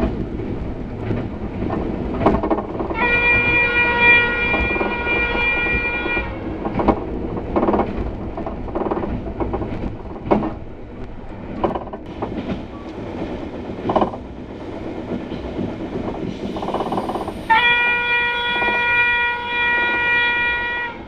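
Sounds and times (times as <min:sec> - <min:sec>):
wheels knocking over rails: 0:00.0 - 0:17.4
train rumbling at speed: 0:00.0 - 0:21.0
train horn blast: 0:02.9 - 0:06.7, 0:17.5 - 0:21.0.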